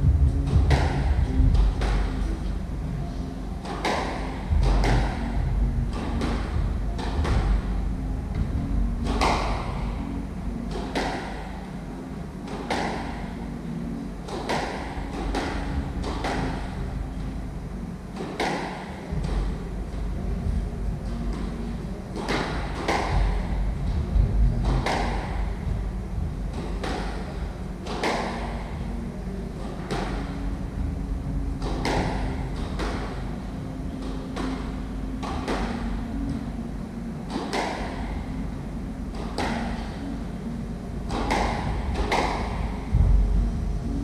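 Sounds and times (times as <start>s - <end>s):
squash ball cracking off rackets: 3.6s - 7.7s, 9.0s - 10.0s, 10.7s - 11.6s, 12.5s - 13.5s, 14.2s - 17.3s, 18.2s - 19.5s, 21.1s - 23.4s, 24.6s - 25.4s, 26.5s - 28.7s, 31.6s - 33.3s, 34.0s - 35.9s, 37.3s - 38.2s, 39.1s - 40.1s, 41.1s - 42.7s.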